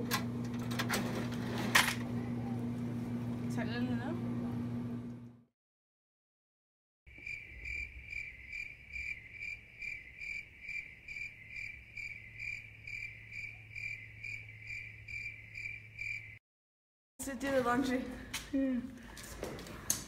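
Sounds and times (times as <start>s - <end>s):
cricket chirping: 7.1s - 16.4s.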